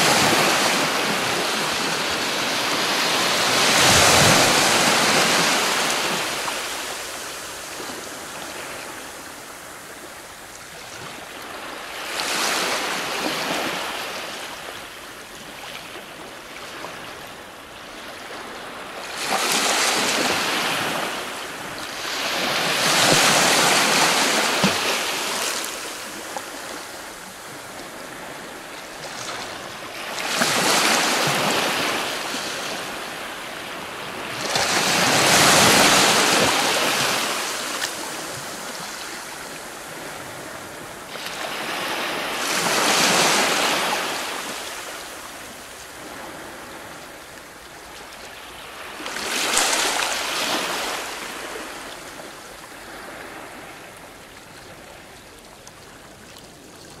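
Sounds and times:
waves breaking on rocks: 0.0 - 7.0, 30.1 - 32.8.

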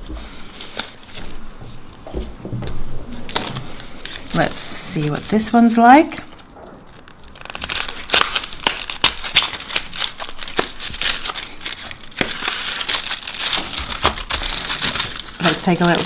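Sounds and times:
cardboard box crinkling and scraping: 7.0 - 16.0.

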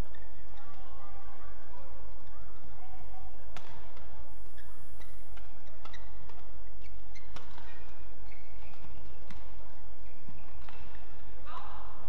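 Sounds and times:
shoes squeaking on court floor: 0.0 - 2.7, 3.5 - 11.3
racket striking shuttlecock: 3.5 - 4.1, 5.3 - 9.6, 10.3 - 11.7.

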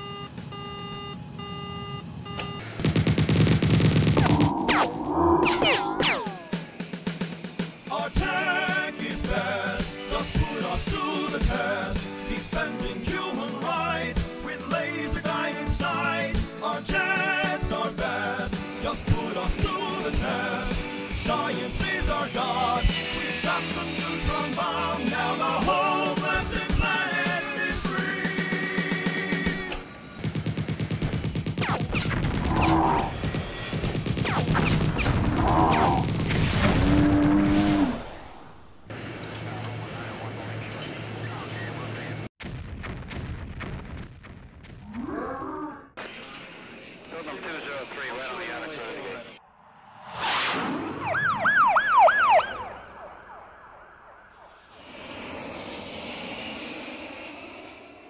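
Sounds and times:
loud blasts: 2.6 - 7.0, 30.0 - 38.9
rapid gunfire rattle: 2.7 - 4.6, 30.2 - 32.6, 33.2 - 37.7
warbling siren-like sound effect: 4.2 - 6.6, 32.0 - 33.2, 35.0 - 36.0, 36.6 - 38.6, 50.7 - 55.8
jet fighter engines roaring: 52.3 - 58.0.

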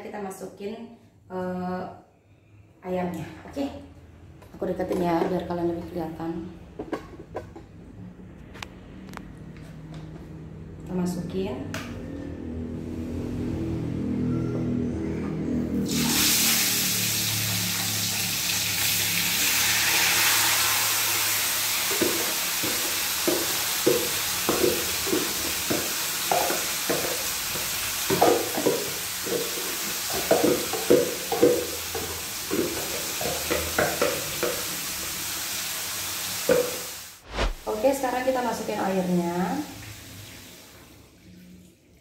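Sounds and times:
chicken sizzling in hot oil: 15.9 - 37.2.

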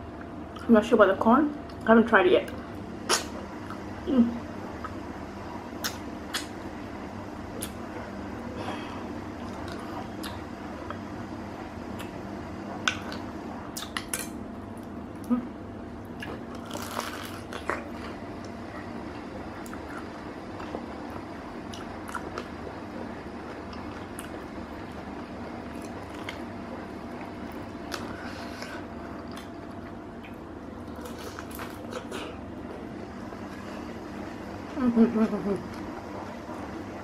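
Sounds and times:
steady low hum: 0.0 - 37.0
person chewing: 9.4 - 11.0, 13.8 - 14.3, 16.0 - 18.6, 19.6 - 22.5, 23.4 - 24.4, 27.2 - 32.4.

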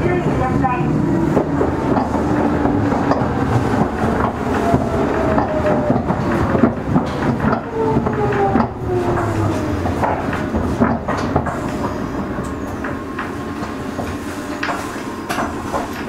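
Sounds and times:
train rumble: 0.0 - 16.0
train wheels clicking over rail joints: 0.4 - 16.0
train motor whine: 1.2 - 13.3.

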